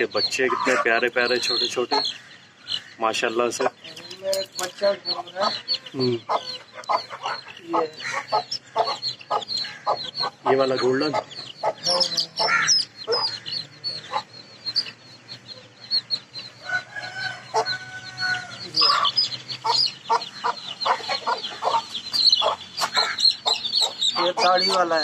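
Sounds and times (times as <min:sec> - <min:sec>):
chicks peeping: 0:00.0 - 0:25.0
hen clucking: 0:00.0 - 0:25.0
rooster crowing: 0:16.6 - 0:19.1.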